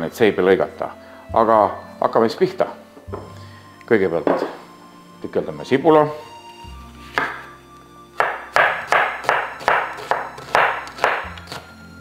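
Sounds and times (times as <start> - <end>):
soft background music: 0.0 - 12.0
knife chopping on cutting board: 7.1 - 7.5, 8.2 - 11.6.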